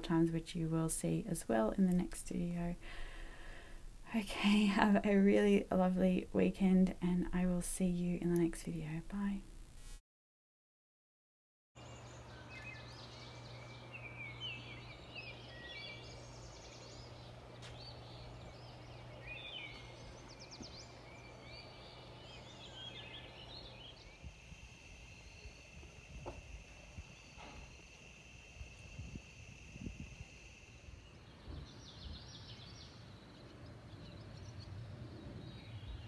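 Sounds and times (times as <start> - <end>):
low steady hum: 0.0 - 10.0, 11.8 - 36.0
birds singing: 11.8 - 28.2, 28.8 - 36.0
insects trilling: 11.8 - 33.4.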